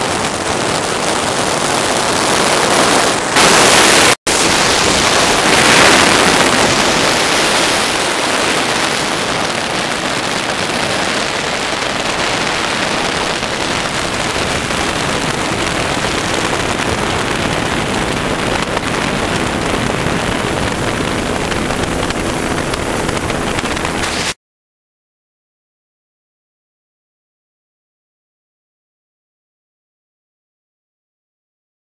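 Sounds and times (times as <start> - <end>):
wind buffeting microphone: 0.0 - 24.3
helicopter in flight: 4.4 - 24.4.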